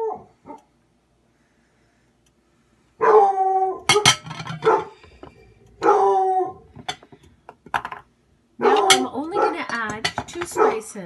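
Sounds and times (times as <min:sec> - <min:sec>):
dog howling: 0:03.0 - 0:04.0, 0:04.7 - 0:06.8, 0:08.6 - 0:09.6
dog barking: 0:04.6 - 0:05.0, 0:05.8 - 0:06.2, 0:08.6 - 0:09.6, 0:10.5 - 0:10.9.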